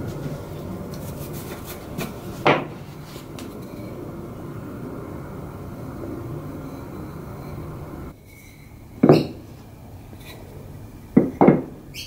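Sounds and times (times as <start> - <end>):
faint low hum: 0.0 - 12.0
wooden knock on bench: 11.2 - 11.7.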